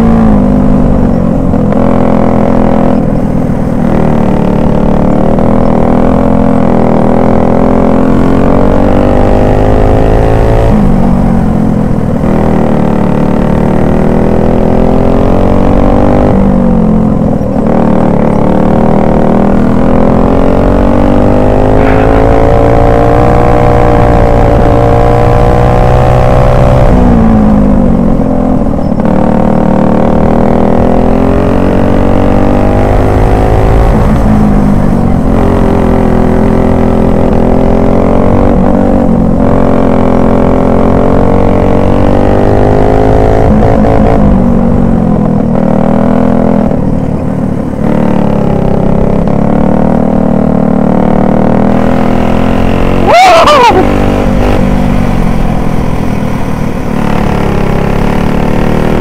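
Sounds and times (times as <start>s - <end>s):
kart engine revving: 0.0s - 45.0s, 47.8s - 59.0s
short sound dropping in pitch: 21.5s - 23.3s, 53.0s - 54.2s.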